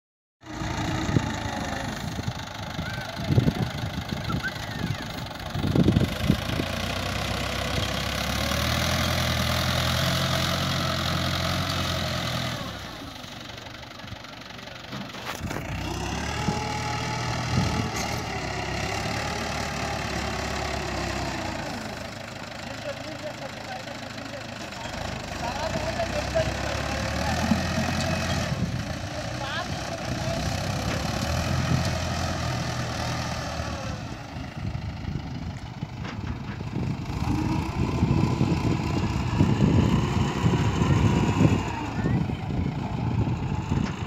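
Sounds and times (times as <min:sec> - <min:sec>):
tractor diesel engine running: 0:00.4 - 0:44.0.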